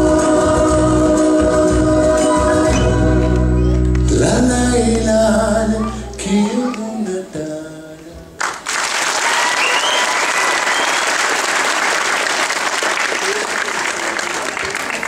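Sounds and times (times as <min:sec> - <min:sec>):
song closing notes: 0:00.0 - 0:07.9
audience applause: 0:08.4 - 0:15.0.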